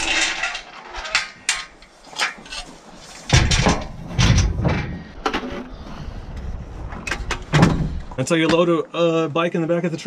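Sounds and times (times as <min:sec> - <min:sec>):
metal ramp clanking and rattling: 0:00.0 - 0:05.6
heavy metal thumps and clatter: 0:03.3 - 0:05.4, 0:07.0 - 0:08.0.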